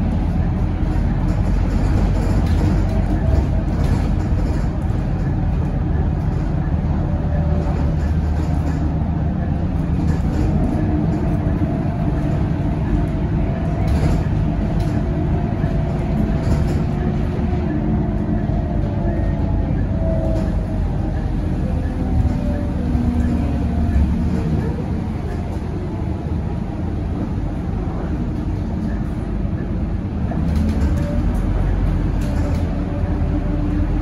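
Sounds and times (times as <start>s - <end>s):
bus diesel engine drone: 0.0s - 34.0s
road rumble: 0.0s - 34.0s
body clicks and rattles: 0.6s - 8.9s, 9.6s - 19.6s, 30.3s - 33.5s.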